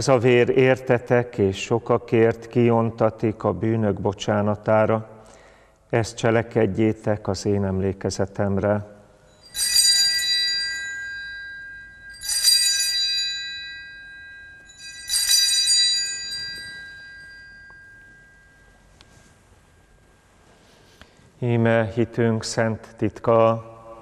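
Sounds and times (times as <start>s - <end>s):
altar bells ringing: 9.1s - 20.8s.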